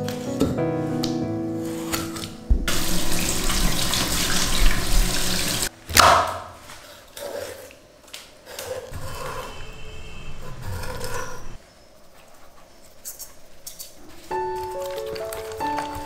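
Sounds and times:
loud thump: 2.5 - 2.8
tap water running into sink: 2.6 - 5.7.

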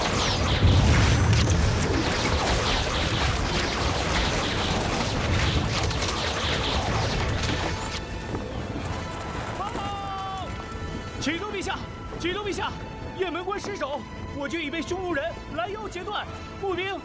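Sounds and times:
volley of arrows: 0.0 - 8.9
heavy low boom: 0.1 - 2.0.

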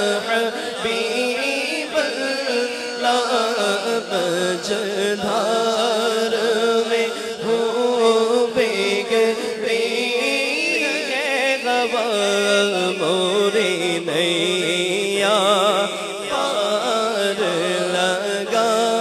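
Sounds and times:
man singing into a microphone: 0.0 - 19.0.

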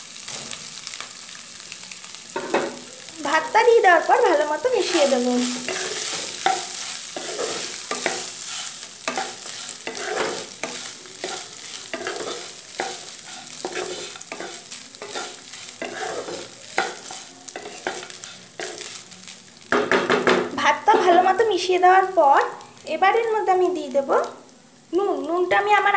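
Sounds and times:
oil sizzling: 0.0 - 25.9
spatula scraping a pan: 4.6 - 19.0.

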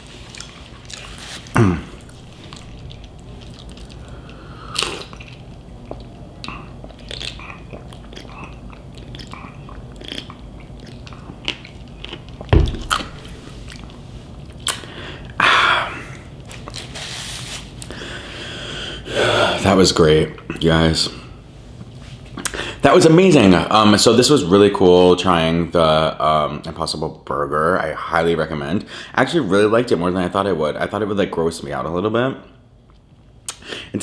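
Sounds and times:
person chewing food: 0.1 - 15.4, 16.5 - 16.9
low thump: 12.5 - 13.0.

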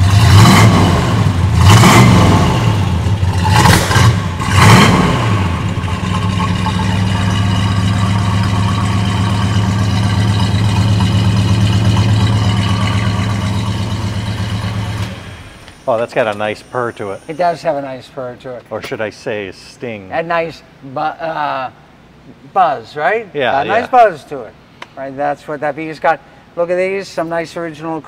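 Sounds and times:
car engine revving: 0.0 - 15.8
car engine idling: 0.0 - 17.6.

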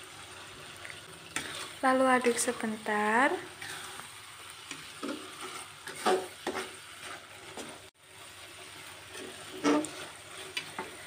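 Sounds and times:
faint frying sizzle: 0.0 - 11.0
metal spatula scraping a wok: 1.4 - 1.8, 3.5 - 4.0, 4.7 - 7.9, 9.0 - 11.0.

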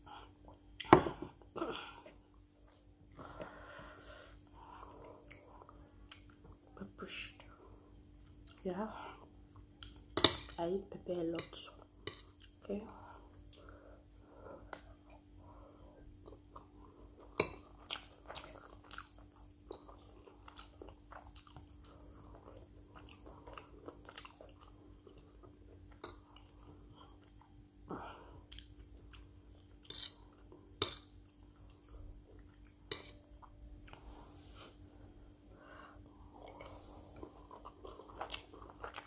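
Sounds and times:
faint steady hum: 0.0 - 39.0
person chewing: 4.8 - 6.5, 9.5 - 10.3, 12.0 - 12.6, 16.2 - 34.8, 35.7 - 39.0.

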